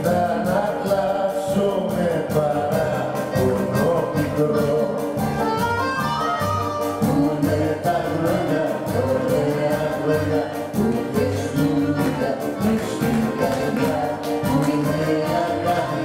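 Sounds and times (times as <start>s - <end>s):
accordion: 0.0s - 16.0s
drums: 0.0s - 16.0s
guitar: 0.0s - 16.0s
keyboard: 0.0s - 16.0s
flute: 3.6s - 7.4s.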